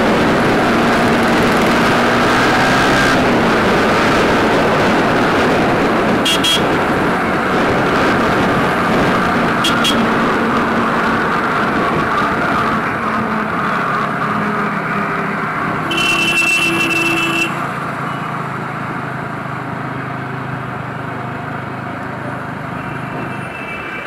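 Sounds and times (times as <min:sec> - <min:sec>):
motorcycle engine running: 0:00.0 - 0:14.7
wind and road noise: 0:00.0 - 0:24.0
vehicle horn beeps: 0:06.2 - 0:06.8, 0:09.6 - 0:10.1, 0:15.9 - 0:18.3.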